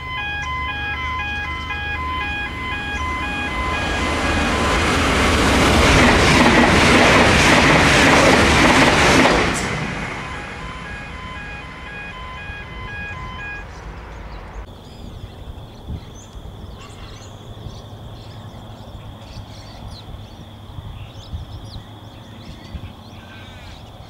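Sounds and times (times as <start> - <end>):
pulsing electronic multi-tone signal: 0.0 - 7.0, 8.2 - 13.7
steady high tone: 0.0 - 14.6
small birds chirping: 11.1 - 24.0
crow-like caws: 23.1 - 23.9.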